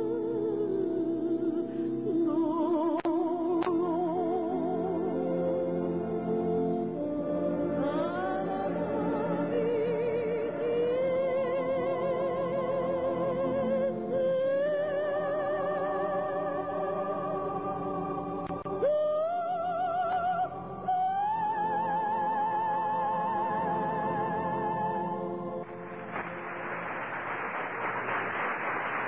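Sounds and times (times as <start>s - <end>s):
soprano singing with vibrato: 0.0s - 25.4s.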